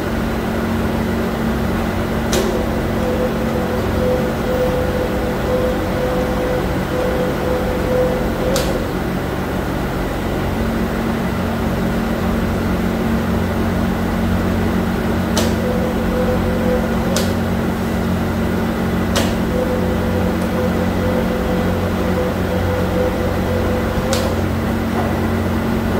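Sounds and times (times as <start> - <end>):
factory machinery hum: 0.0 - 25.9
held machine tones: 2.2 - 9.3, 15.0 - 25.5.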